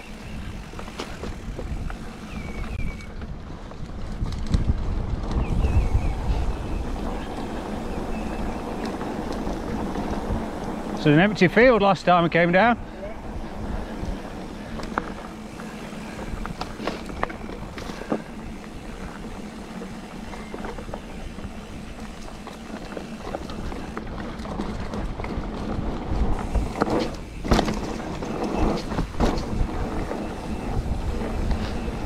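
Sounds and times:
bike clicks and rattles: 0.0s - 32.0s
tyre and wind rumble: 0.0s - 32.0s
bike knocks: 26.5s - 30.6s.

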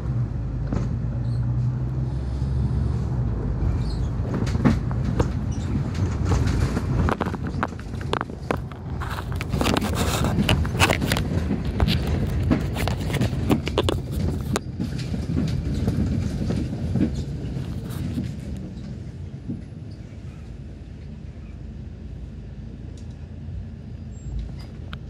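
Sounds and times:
bus interior rumble: 0.0s - 25.0s
knocks and rattles: 3.8s - 20.0s.

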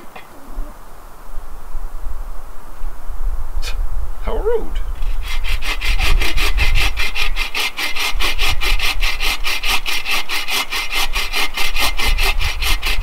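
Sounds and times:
saw cutting through log: 5.0s - 13.0s.

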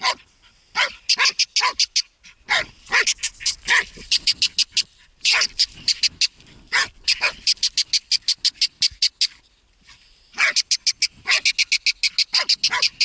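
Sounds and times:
dog yipping and squealing: 0.8s - 8.4s, 10.4s - 13.0s.

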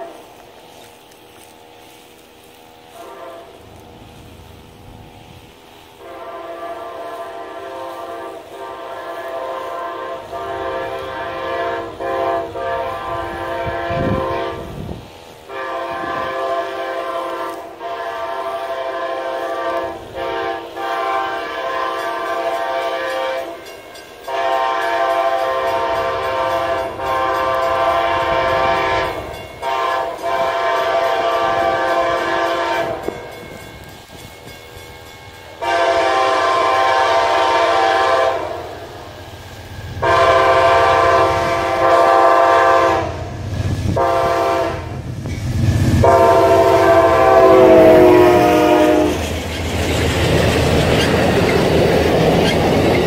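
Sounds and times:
train air horn blasts: 0.0s - 34.2s, 35.5s - 49.3s.

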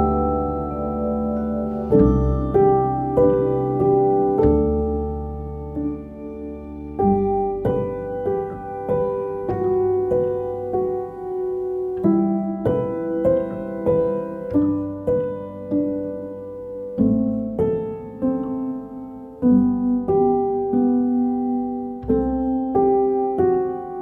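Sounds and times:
slow piano music: 0.0s - 24.0s.

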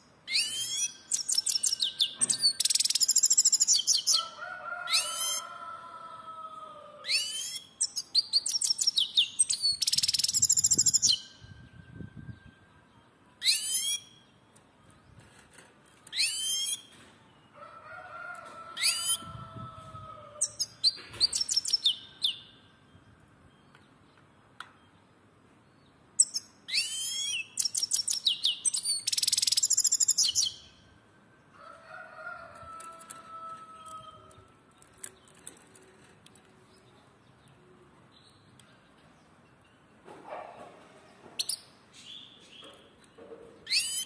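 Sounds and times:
finch twittering and trilling: 43.7s - 44.0s.

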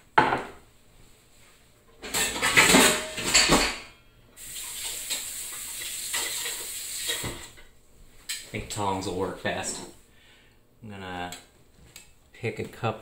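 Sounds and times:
handling rustling and clattering: 2.0s - 3.8s
steady faint hiss: 3.9s - 13.0s.

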